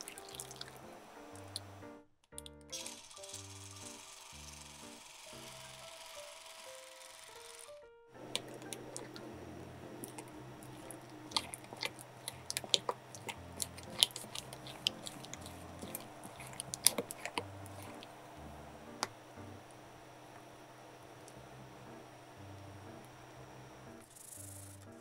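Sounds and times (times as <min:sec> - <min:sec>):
wet batter squishing: 0:00.0 - 0:01.7, 0:08.2 - 0:19.8.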